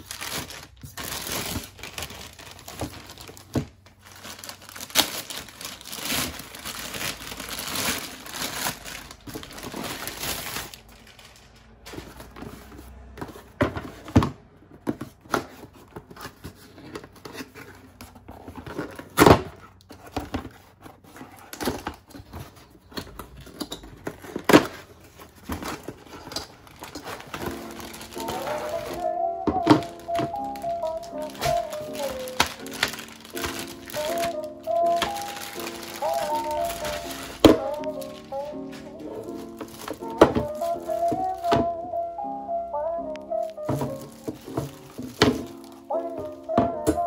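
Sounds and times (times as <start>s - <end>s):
plastic mailer bag tearing: 0.0s - 12.4s, 23.2s - 41.6s, 43.6s - 47.0s
cardboard box rustling: 0.0s - 41.8s, 43.5s - 47.0s.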